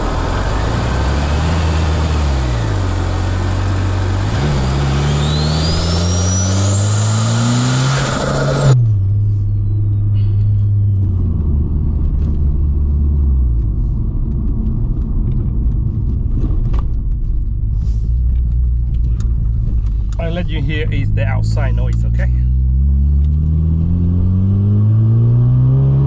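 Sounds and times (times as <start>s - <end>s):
car engine revving: 0.0s - 9.4s, 18.7s - 26.0s
high whine: 0.0s - 11.8s.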